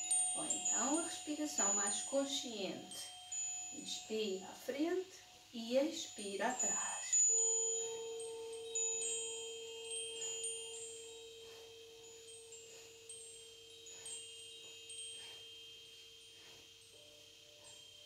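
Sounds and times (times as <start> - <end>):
chimes ringing: 0.0 - 4.4, 5.4 - 18.0
long held low tone: 6.6 - 13.8.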